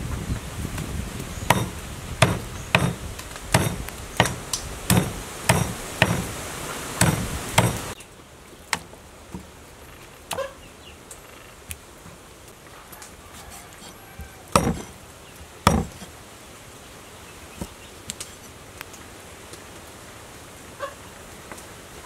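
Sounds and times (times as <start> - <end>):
cleaver chopping on wooden board: 1.5 - 6.4, 7.0 - 8.0, 13.4 - 15.0, 15.6 - 16.1
faint knocks: 13.7 - 15.0.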